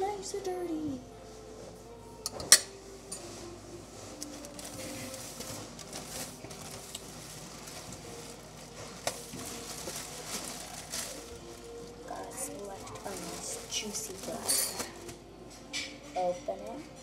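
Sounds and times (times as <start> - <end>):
plastic bag crinkling: 3.9 - 15.2.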